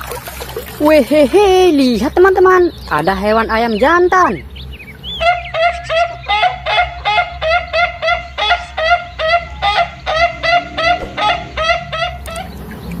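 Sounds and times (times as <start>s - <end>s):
fowl honking: 4.1s - 12.8s.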